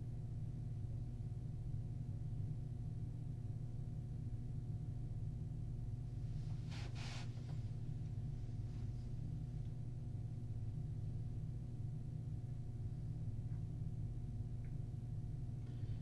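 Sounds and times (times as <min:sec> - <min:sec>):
steady low hum: 0:00.0 - 0:16.0
short soft hiss: 0:06.5 - 0:07.6.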